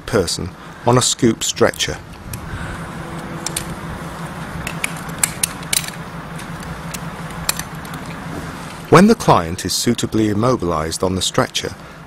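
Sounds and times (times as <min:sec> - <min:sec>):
steady low hum: 0:00.0 - 0:12.0
metal clicks and clinks: 0:03.4 - 0:03.8, 0:04.6 - 0:08.8.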